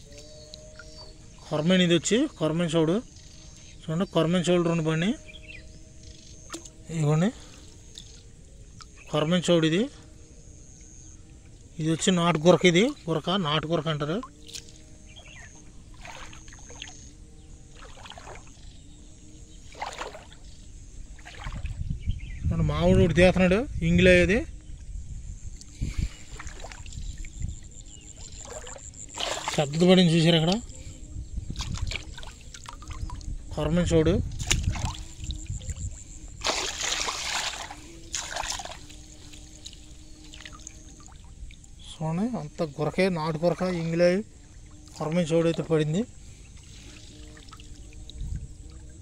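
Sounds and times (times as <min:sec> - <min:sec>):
pond water splashing: 0:05.8 - 0:09.1, 0:11.2 - 0:21.9, 0:25.5 - 0:49.0
water splashing off a net: 0:15.9 - 0:17.1, 0:17.7 - 0:18.6, 0:19.6 - 0:20.4, 0:21.2 - 0:21.8, 0:26.2 - 0:27.2, 0:28.3 - 0:29.8, 0:31.5 - 0:33.3, 0:34.3 - 0:35.8, 0:36.4 - 0:41.6.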